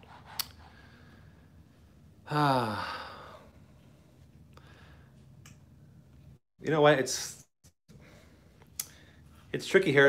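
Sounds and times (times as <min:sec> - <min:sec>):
person sighing: 0:02.2 - 0:03.6.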